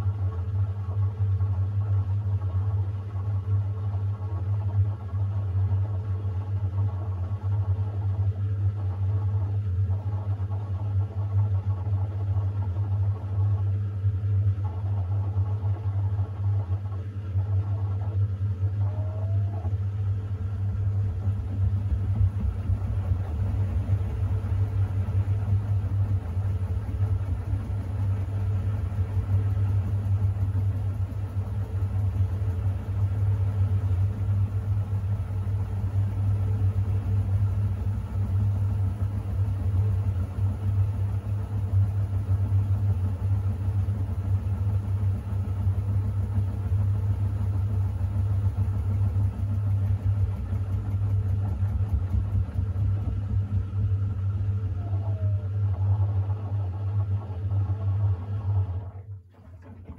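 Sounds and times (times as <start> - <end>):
washing machine spinning: 0.0 - 59.9.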